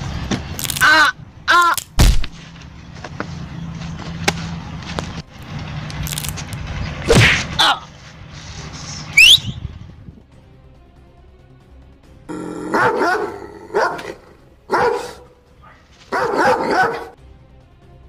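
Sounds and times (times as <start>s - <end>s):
sharp thump: 2.0s - 2.4s, 7.1s - 7.6s
rising whistle-like sweep: 8.9s - 9.8s.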